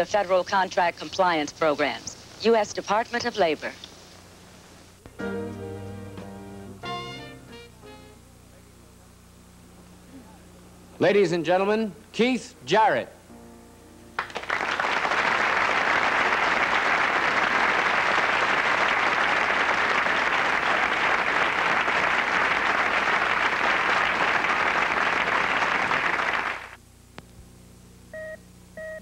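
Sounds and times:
audience applauding: 0:14.2 - 0:26.8.

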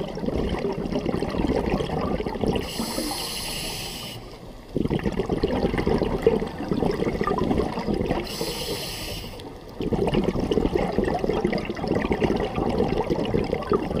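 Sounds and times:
exhaled bubbles underwater: 0:00.0 - 0:14.0
regulator inhalation hiss: 0:02.6 - 0:04.4, 0:08.2 - 0:09.5.

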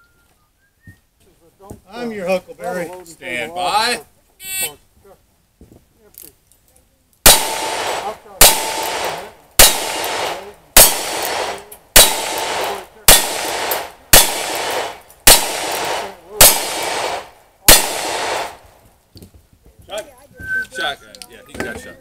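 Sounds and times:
revolver gunshots: 0:07.2 - 0:18.7.

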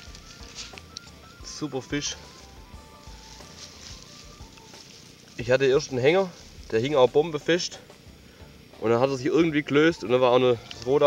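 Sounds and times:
faint background music: 0:00.0 - 0:11.0.

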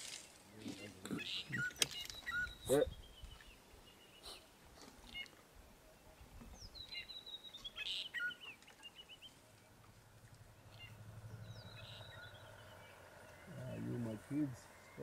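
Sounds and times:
bird calling descending notes: 0:10.3 - 0:15.0.

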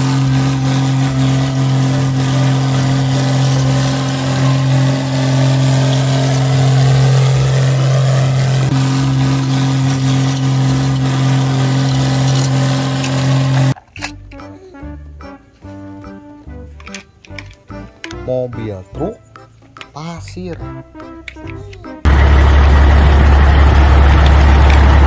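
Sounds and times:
tractor engine running: 0:00.0 - 0:14.3, 0:22.0 - 0:25.0.

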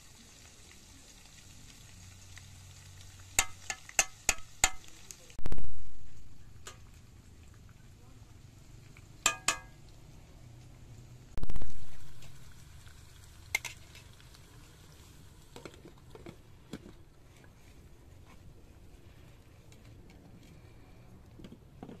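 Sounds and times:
glass lid clink and taps: 0:09.3 - 0:09.7.

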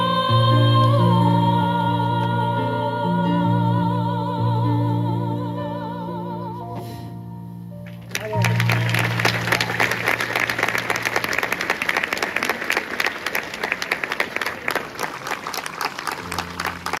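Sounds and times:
audience applauding: 0:07.9 - 0:17.0.

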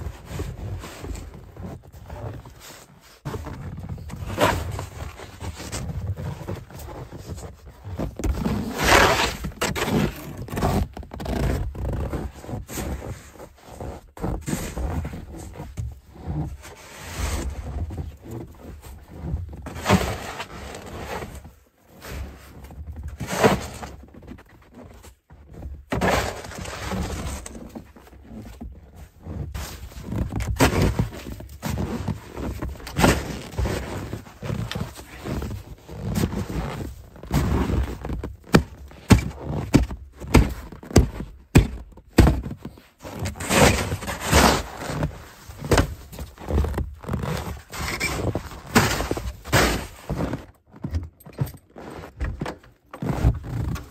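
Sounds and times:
snow shovel scraping snow: 0:08.4 - 0:15.6, 0:19.1 - 0:21.4, 0:25.9 - 0:27.8, 0:29.2 - 0:41.8, 0:42.4 - 0:50.4.

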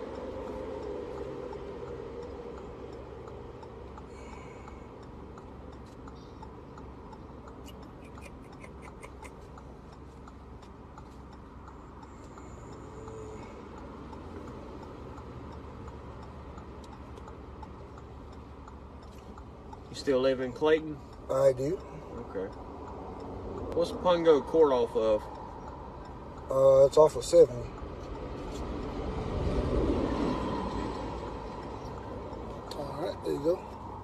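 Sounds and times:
rapid small ticks: 0:00.1 - 0:21.9.

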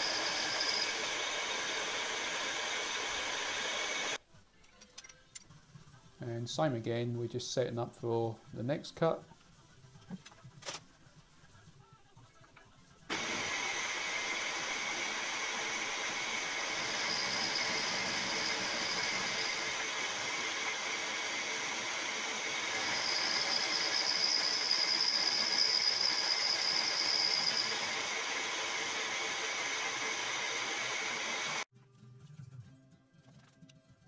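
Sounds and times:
milling machine cutting whine: 0:00.0 - 0:04.2, 0:13.1 - 0:31.7.

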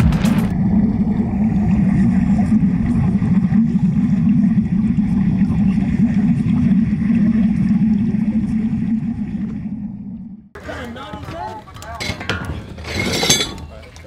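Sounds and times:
underwater bubbling rumble: 0:00.0 - 0:10.6.

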